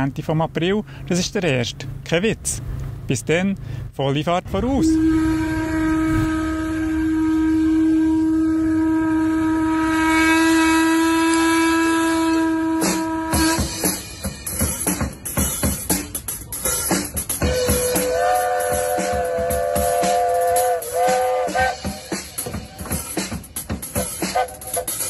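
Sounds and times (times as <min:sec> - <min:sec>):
steam whistle: 0:04.7 - 0:14.3, 0:17.4 - 0:23.3, 0:24.0 - 0:25.0
drum strikes: 0:12.9 - 0:24.4.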